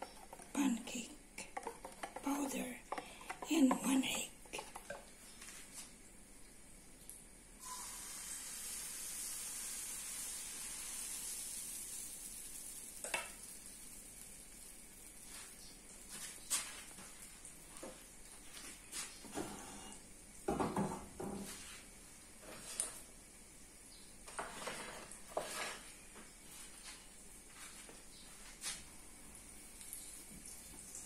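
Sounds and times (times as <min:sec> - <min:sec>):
metal bowl clattering on stove: 0:01.4 - 0:05.1
batter sizzling in a frying pan: 0:05.3 - 0:20.6, 0:29.2 - 0:31.0.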